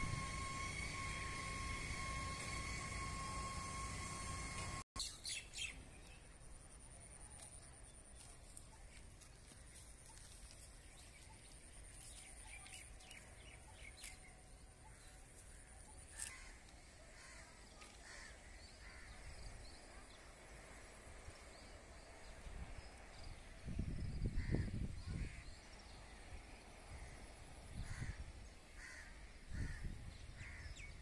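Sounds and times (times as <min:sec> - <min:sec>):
thin high whine: 0:00.0 - 0:04.8.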